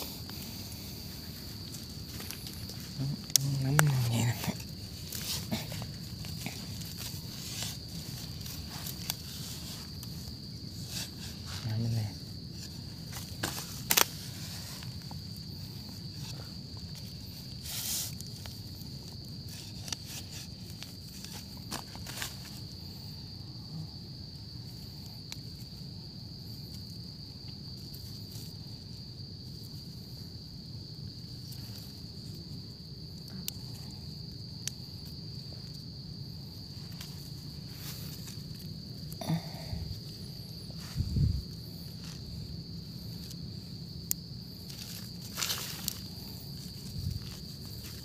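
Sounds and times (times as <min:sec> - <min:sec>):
high-pitched insect drone: 0:00.0 - 0:18.7
dry leaves and twigs rustling: 0:00.0 - 0:48.0.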